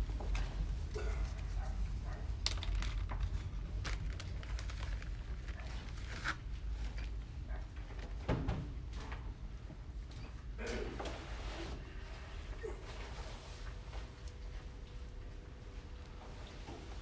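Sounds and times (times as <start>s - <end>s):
low room rumble: 0.0s - 17.0s
plastic bag crinkling: 2.4s - 6.4s.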